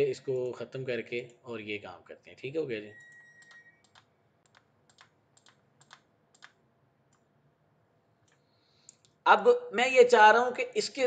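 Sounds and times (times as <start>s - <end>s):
computer keys clicking: 3.4s - 7.3s.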